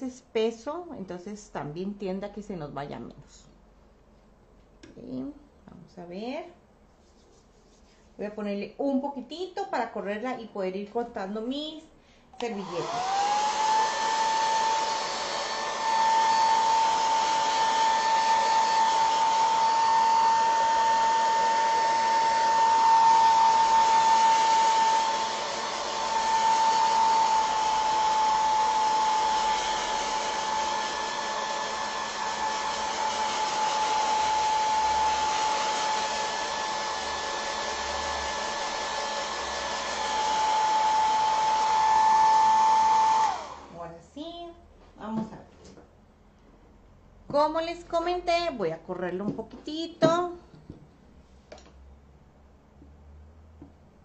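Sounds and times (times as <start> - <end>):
hair dryer blowing: 12.4 - 43.9.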